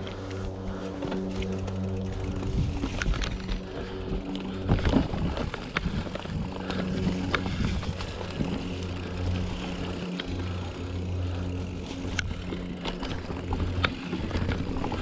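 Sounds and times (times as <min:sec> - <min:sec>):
vehicle engine hum: 0:00.0 - 0:15.0.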